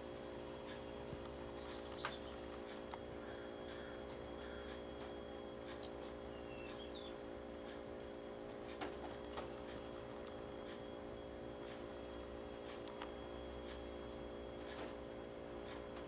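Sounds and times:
songbird chip calls: 0:00.0 - 0:07.6, 0:12.9 - 0:14.3
steady low hum: 0:00.0 - 0:16.0
soft ticks: 0:00.6 - 0:10.9, 0:11.6 - 0:11.9.

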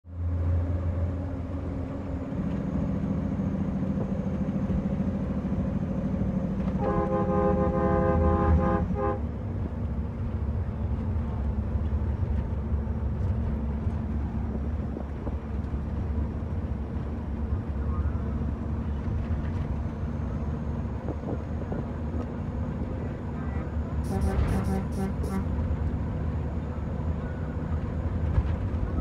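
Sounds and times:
truck diesel engine running: 0:00.1 - 0:29.0
truck horn: 0:06.7 - 0:09.3, 0:24.0 - 0:25.6.

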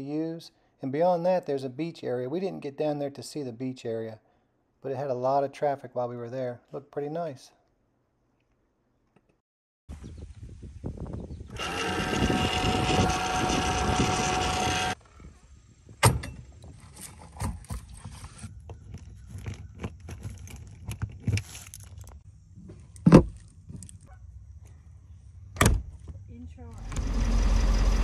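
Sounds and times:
loud noise with held tones: 0:11.5 - 0:15.0.

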